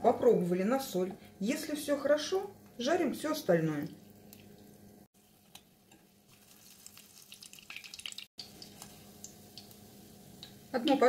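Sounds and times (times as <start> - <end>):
patty sizzling in oil: 4.0 - 11.0.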